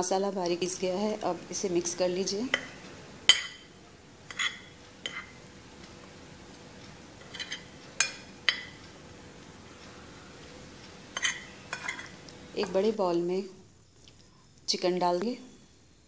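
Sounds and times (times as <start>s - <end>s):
spoon clinking on ceramic plate: 4.3s - 5.4s, 7.2s - 8.8s, 11.2s - 12.8s.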